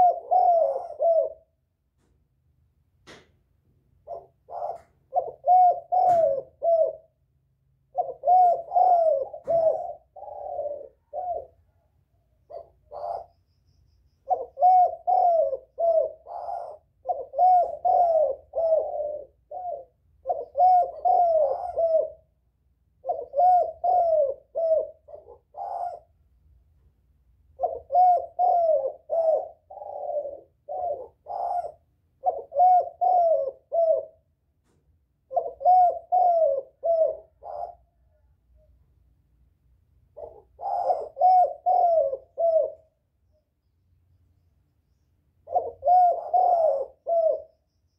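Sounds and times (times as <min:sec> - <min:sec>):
dove cooing: 0:00.0 - 0:01.6, 0:04.0 - 0:11.8, 0:12.4 - 0:13.5, 0:14.2 - 0:22.4, 0:23.0 - 0:26.2, 0:27.6 - 0:34.3, 0:35.2 - 0:38.7, 0:40.1 - 0:43.0, 0:45.4 - 0:47.9.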